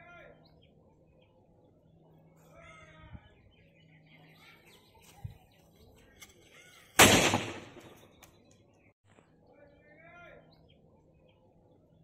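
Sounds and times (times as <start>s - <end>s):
small birds chirping: 0.0s - 12.0s
pipe pistol bang: 7.0s - 8.0s.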